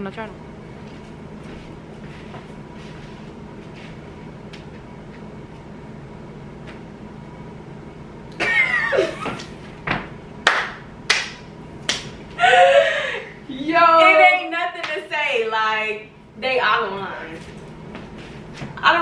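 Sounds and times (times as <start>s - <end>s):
faint room hum: 0.0s - 19.0s
sharp hand claps: 10.4s - 12.2s.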